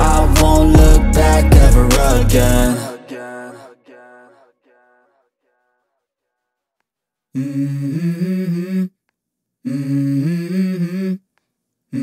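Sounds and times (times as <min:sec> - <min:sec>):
low hummed vocal phrase: 0:00.0 - 0:03.3.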